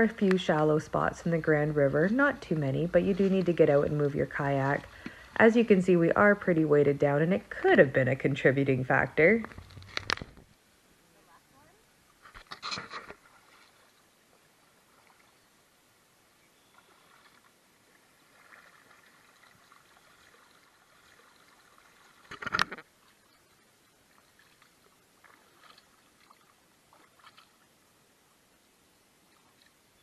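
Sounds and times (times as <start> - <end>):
river wash: 0.0 - 10.0, 10.7 - 30.0
paddle splashes and drips: 0.2 - 5.6, 12.1 - 15.6, 16.6 - 27.8, 29.2 - 29.8.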